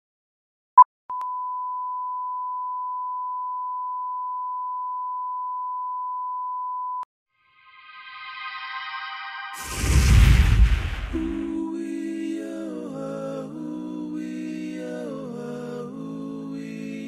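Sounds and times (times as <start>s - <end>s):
short beep: 1.1s - 7.0s.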